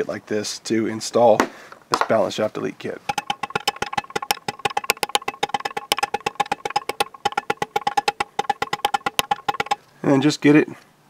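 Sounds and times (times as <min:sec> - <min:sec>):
hammer tapping metal drift: 0:03.1 - 0:09.8.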